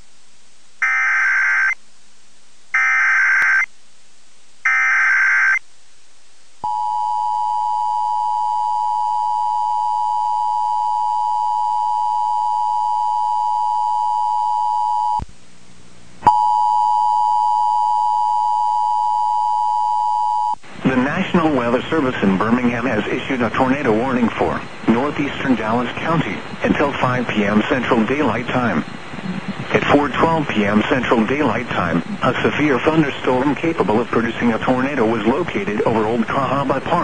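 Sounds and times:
digital data tone bursts: 0.8s - 1.8s.

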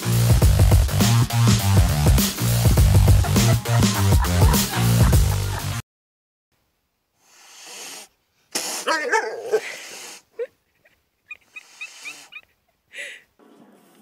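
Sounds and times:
breathy animal snorts: 7.2s - 8.9s.

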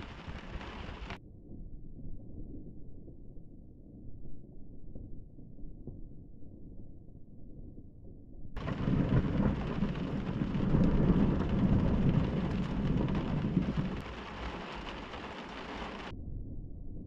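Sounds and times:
heavy rain pattering: 0.0s - 1.2s, 8.6s - 16.1s
thunder rumbling: 0.0s - 1.2s, 8.6s - 16.8s.

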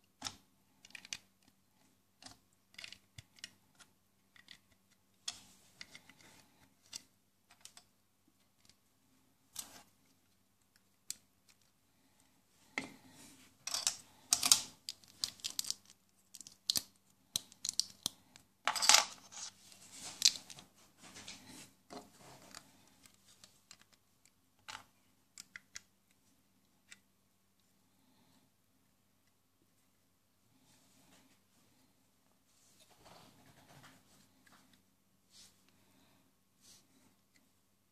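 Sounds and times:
plastic toy bricks clicking: 2.2s - 3.6s, 13.7s - 18.2s.

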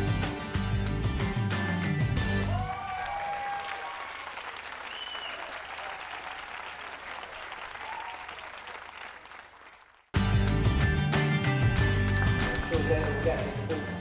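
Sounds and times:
crowd applauding: 2.4s - 10.2s, 11.8s - 13.9s.

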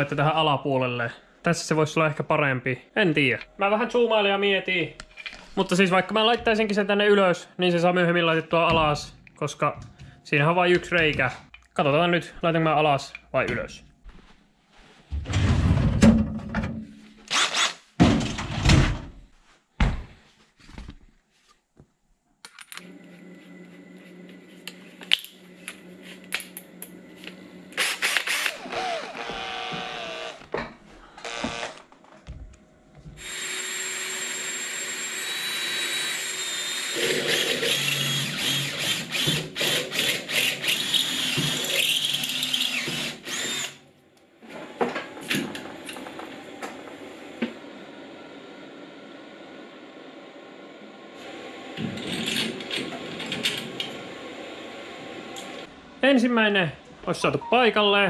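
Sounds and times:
cordless drill running: 17.3s - 17.8s, 27.8s - 30.5s, 31.2s - 31.8s, 33.2s - 43.8s.

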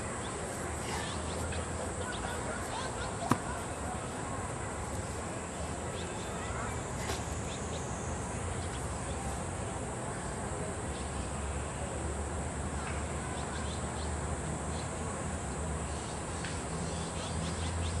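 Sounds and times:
steady hiss and low hum: 0.0s - 18.0s.

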